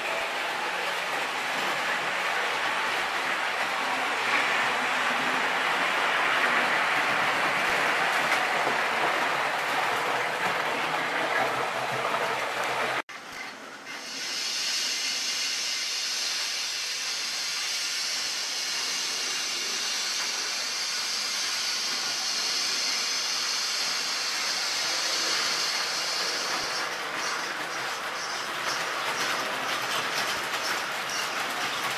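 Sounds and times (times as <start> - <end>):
model train rolling rumble: 0.0 - 31.9
model train high hiss: 13.9 - 31.4.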